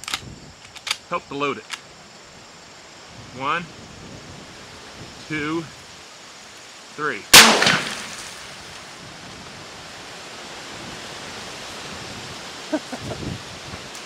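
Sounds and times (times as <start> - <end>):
steady outdoor hiss: 0.0 - 14.0
rifle shot tail: 7.4 - 8.4.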